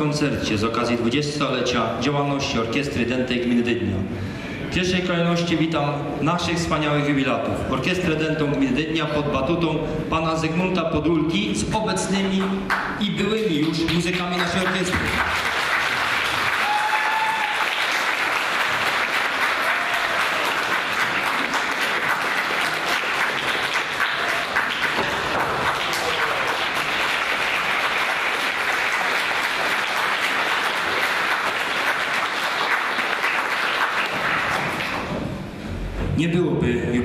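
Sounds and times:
audience applauding: 12.7 - 35.1.

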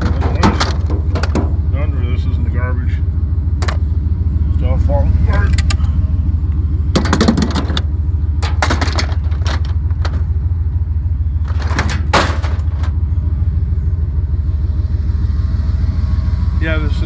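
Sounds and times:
rattling knocks and clunks: 0.0 - 1.7, 3.6 - 3.9, 6.9 - 10.5, 11.4 - 13.0
truck engine droning: 0.0 - 17.0.

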